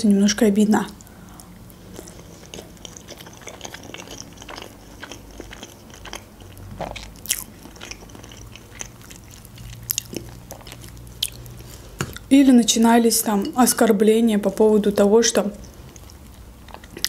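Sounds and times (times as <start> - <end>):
person chewing food: 1.0 - 12.3, 15.6 - 17.0.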